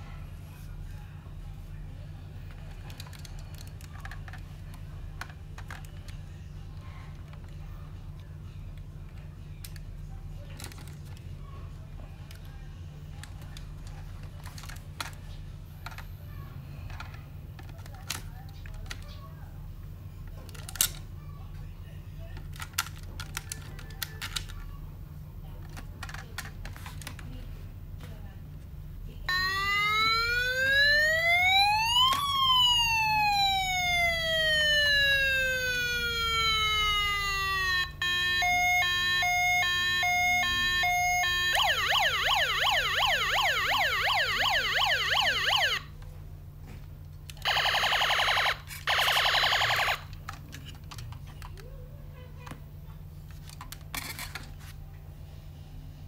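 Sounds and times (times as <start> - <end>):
toy siren wailing: 29.3 - 45.9, 47.4 - 50.1.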